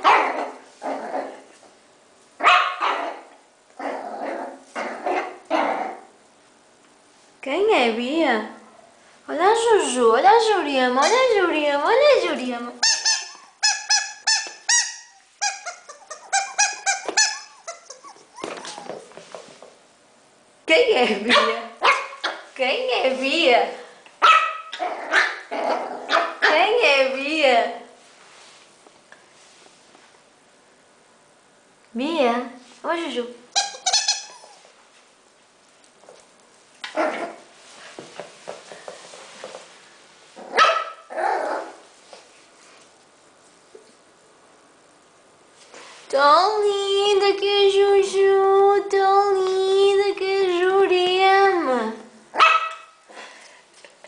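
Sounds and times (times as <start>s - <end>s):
small dog barking: 0.0s - 0.6s, 2.4s - 3.3s, 21.3s - 22.5s, 24.2s - 26.6s, 40.5s - 41.8s, 52.3s - 53.0s
rubber chicken toy squeaking: 12.8s - 18.2s, 33.6s - 34.6s.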